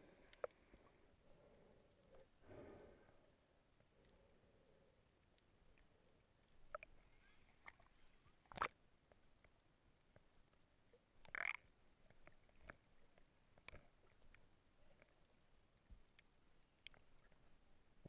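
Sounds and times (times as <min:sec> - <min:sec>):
faint clicks and knocks: 0:00.0 - 0:02.3.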